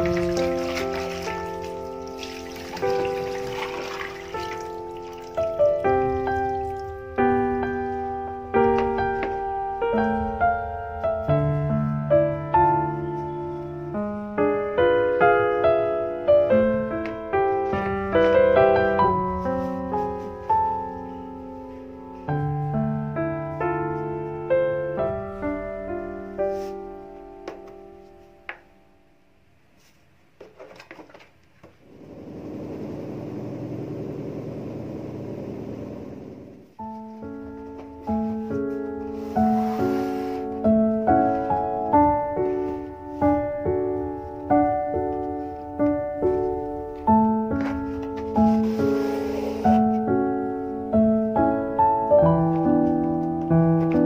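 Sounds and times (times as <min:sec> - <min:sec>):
cloth rustling in plastic basin: 0:00.0 - 0:05.5, 0:36.9 - 0:40.6, 0:47.6 - 0:50.1
washing machine humming: 0:00.0 - 0:07.0, 0:31.6 - 0:36.8
gentle solo piano piece: 0:00.0 - 0:29.1, 0:36.5 - 0:54.0.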